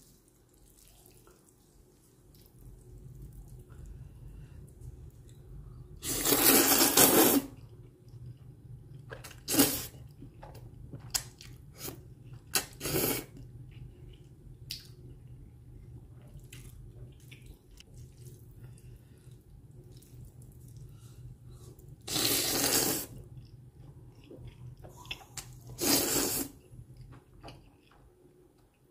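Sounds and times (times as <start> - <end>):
person slurping noodles: 6.0 - 7.6, 12.6 - 13.4, 22.1 - 23.2, 25.7 - 26.6
person chewing: 16.2 - 28.0.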